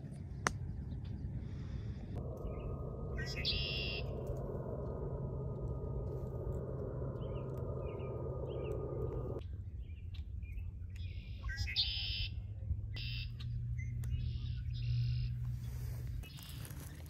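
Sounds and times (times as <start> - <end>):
low rumble: 0.0 - 11.4
blackbird chirps and buzzy trills: 2.2 - 17.0.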